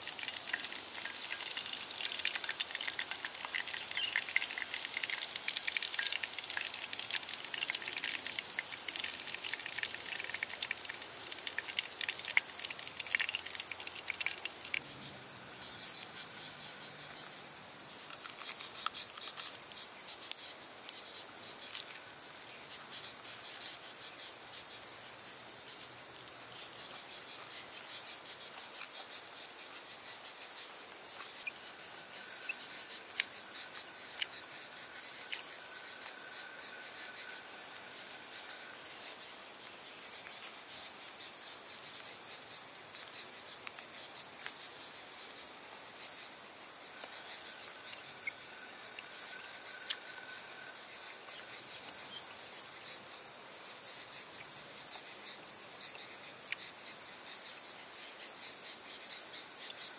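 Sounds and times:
insects chirring: 0:00.0 - 0:59.9
crisp crunches of biting: 0:18.0 - 0:19.7.

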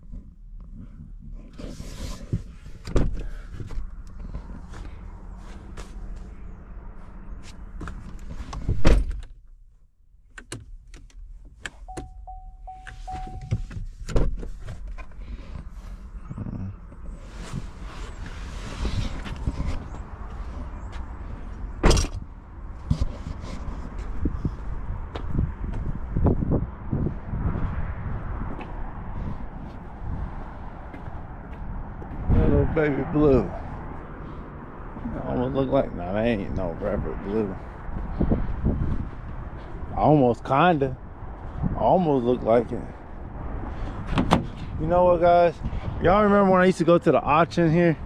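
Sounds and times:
outside noise: 0:00.0 - 0:48.0
car door shutting: 0:02.8 - 0:03.9, 0:07.8 - 0:09.3, 0:11.7 - 0:15.1, 0:44.0 - 0:44.7
car warning chime beeping: 0:11.8 - 0:13.7
wind buffeting microphone: 0:15.7 - 0:46.4.

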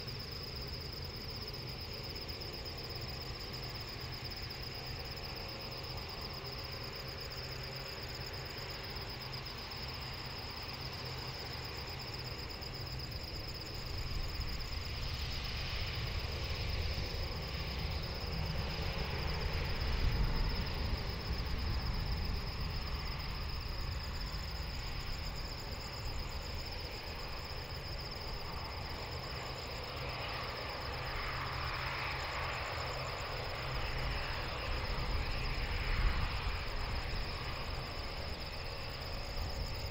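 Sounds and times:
insects chirring: 0:00.0 - 0:39.9
jet engines rumbling: 0:00.1 - 0:39.9.

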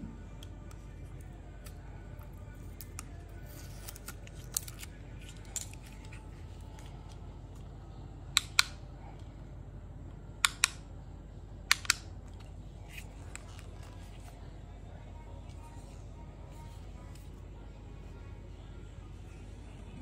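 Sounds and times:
plastic switch clicking: 0:10.4 - 0:10.8, 0:11.7 - 0:12.1.

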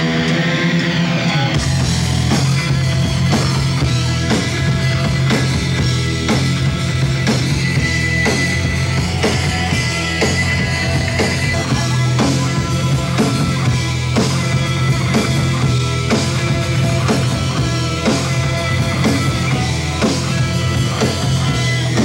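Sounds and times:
grunge rock music: 0:00.0 - 0:22.0.

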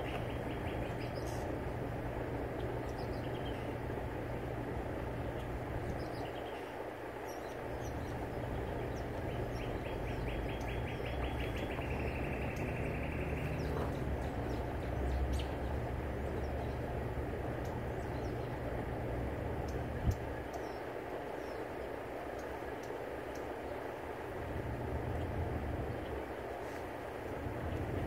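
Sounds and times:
small birds chirping: 0:00.0 - 0:28.0
wind rumbling on microphone: 0:18.0 - 0:20.6.

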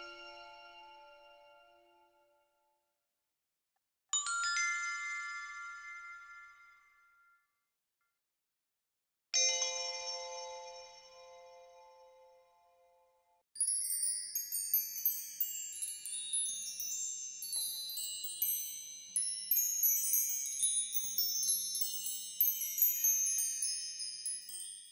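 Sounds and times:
high-pitched chimes ringing: 0:13.6 - 0:24.9.

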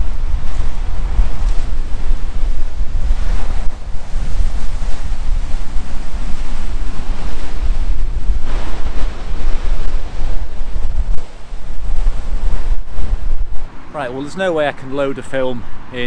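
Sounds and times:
surf crashing on shingle: 0:00.0 - 0:16.0
wind buffeting microphone: 0:00.0 - 0:16.0.

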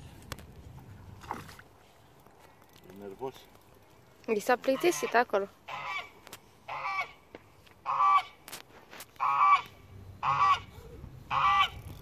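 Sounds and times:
goose honking: 0:04.7 - 0:06.1, 0:06.7 - 0:07.2, 0:07.8 - 0:08.4, 0:09.2 - 0:11.8.

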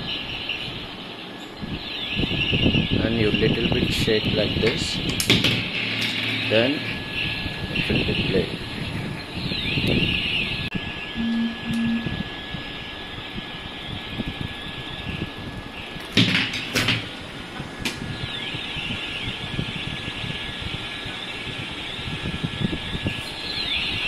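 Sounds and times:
high electronic tone: 0:11.2 - 0:12.3.

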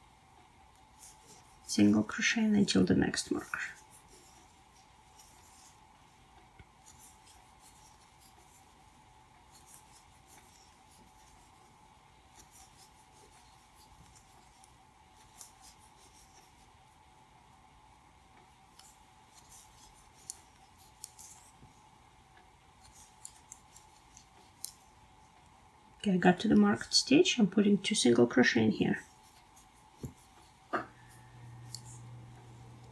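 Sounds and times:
faint steady hum: 0:00.0 - 0:32.9
crochet hook clicking through yarn: 0:05.1 - 0:05.8, 0:06.6 - 0:08.8, 0:09.4 - 0:11.6, 0:12.3 - 0:16.6, 0:18.7 - 0:21.6, 0:22.4 - 0:25.0, 0:29.0 - 0:32.9.

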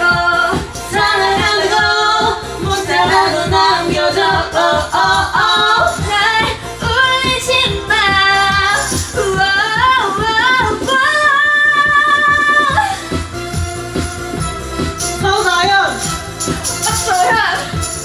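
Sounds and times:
women singing pop song: 0:00.0 - 0:14.4, 0:15.1 - 0:18.0
backing track with steady beat: 0:00.0 - 0:18.0
tambourine shaking: 0:15.0 - 0:18.0.

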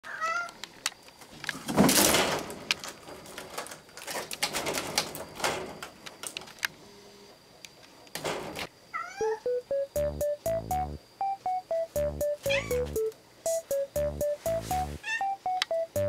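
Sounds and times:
bamboo blind slats rattling: 0:01.5 - 0:06.4.

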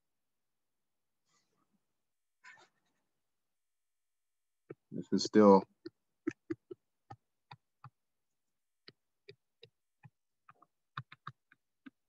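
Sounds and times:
stylus clicking on writing surface: 0:08.8 - 0:12.0.

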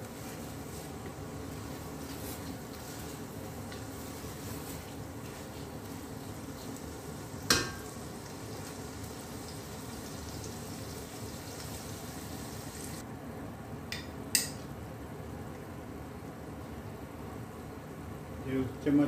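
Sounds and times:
masala sizzling in a pot: 0:00.0 - 0:13.0.

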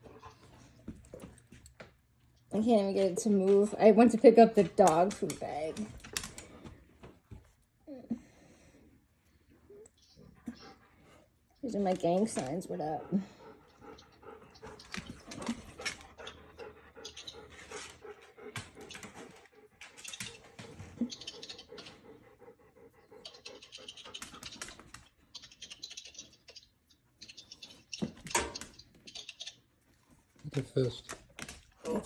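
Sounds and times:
small dog breathing noisily: 0:12.9 - 0:15.0.

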